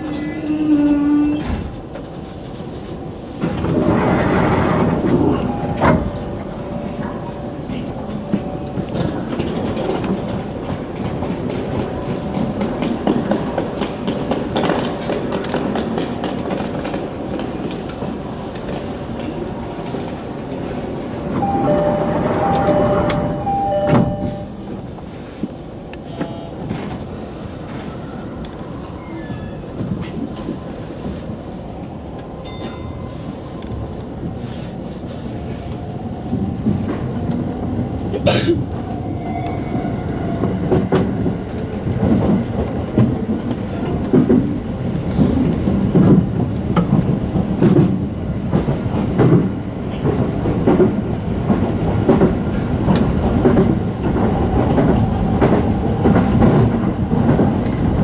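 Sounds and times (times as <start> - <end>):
train doors shutting with thud: 0.0 - 27.8
train rushing noise: 0.0 - 58.0
sharp train clack: 20.8 - 25.5
two-note door chime: 21.4 - 24.7.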